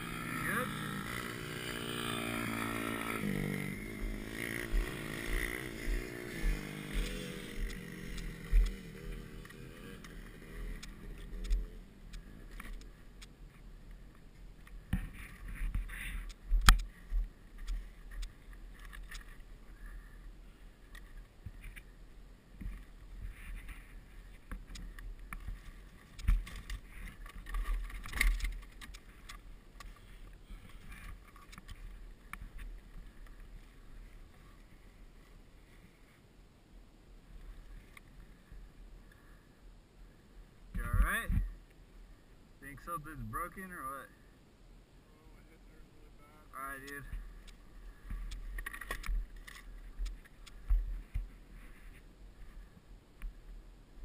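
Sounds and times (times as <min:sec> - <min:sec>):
dirt bike engine drone: 0:00.0 - 0:36.2, 0:40.1 - 0:44.3.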